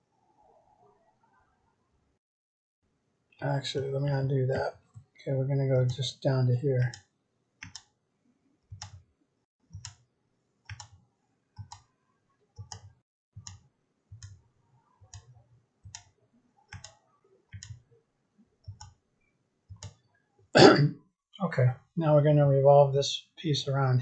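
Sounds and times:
computer mouse clicks: 6.8 - 8.0, 8.7 - 9.0, 9.7 - 11.0, 11.6 - 11.9, 12.6 - 14.4, 15.0 - 17.9, 18.6 - 19.0, 19.7 - 20.1.

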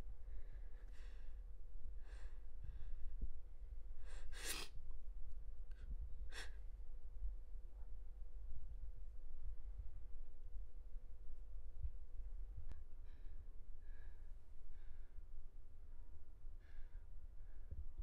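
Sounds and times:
faint steady hum: 0.0 - 18.0
person breathing and sniffing: 4.0 - 4.8.

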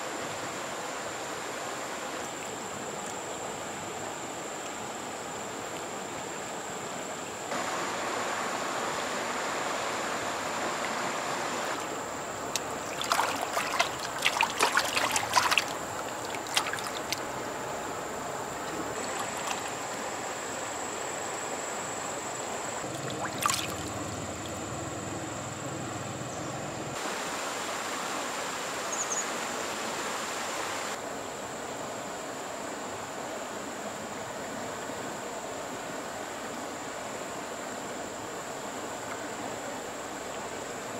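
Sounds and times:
water splashes: 7.5 - 20.6, 22.6 - 28.5
water trickling: 11.8 - 20.2, 22.6 - 27.0.

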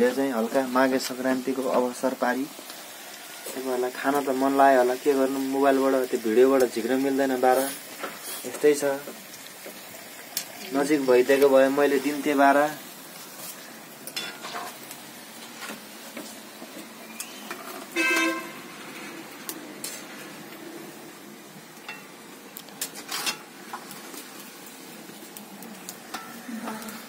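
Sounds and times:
food sizzling in hot oil: 0.0 - 27.0
metal spoon clinking on pan: 26.1 - 26.4.

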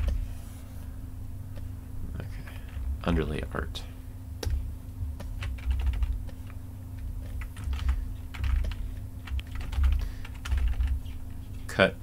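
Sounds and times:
steady low hum: 0.0 - 12.0
keyboard keys clicking: 5.2 - 6.6, 7.2 - 11.2.

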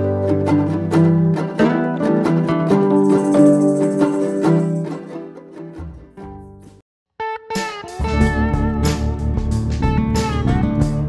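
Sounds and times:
background music: 0.0 - 6.8, 7.4 - 11.0.

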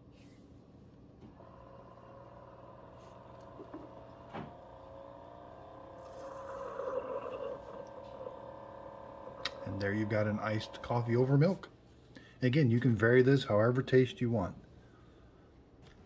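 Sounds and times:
coffee maker pump humming: 1.2 - 11.6
hissing sputter of coffee: 1.4 - 11.0.

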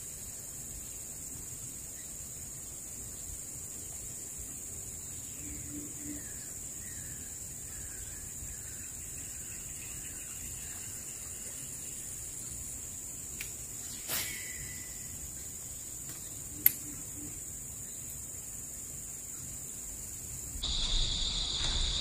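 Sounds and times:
high-pitched insect drone: 5.0 - 18.0, 20.6 - 22.0.

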